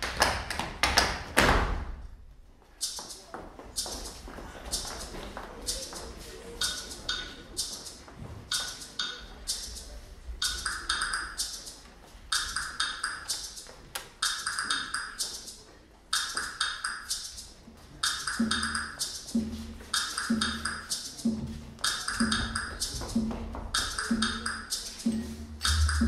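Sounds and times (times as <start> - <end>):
dance music: 18.2 - 26.0
low-pitched instrument: 25.1 - 26.0.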